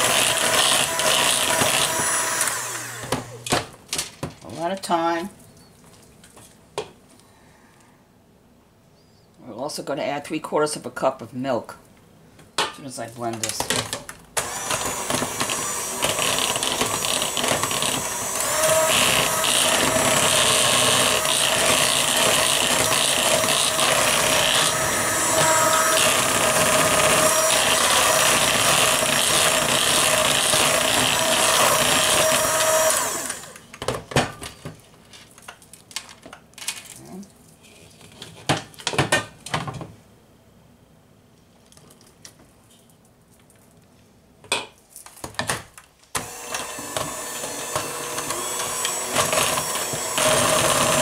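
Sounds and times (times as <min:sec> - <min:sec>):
electric hand mixer whining: 0:00.0 - 0:03.5, 0:14.4 - 0:33.6, 0:46.2 - 0:51.0.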